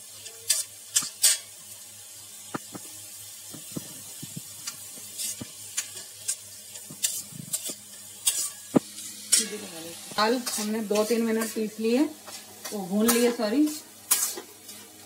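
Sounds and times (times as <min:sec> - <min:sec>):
lentils sizzling in oil: 0:00.0 - 0:15.0
spatula scraping metal pan: 0:00.5 - 0:01.5, 0:04.6 - 0:09.7, 0:10.3 - 0:14.8.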